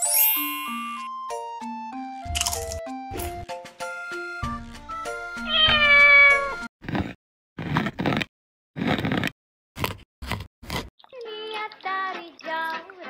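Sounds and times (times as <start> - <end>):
cat meowing: 5.4 - 6.6
knife chopping on wooden board: 6.8 - 10.9.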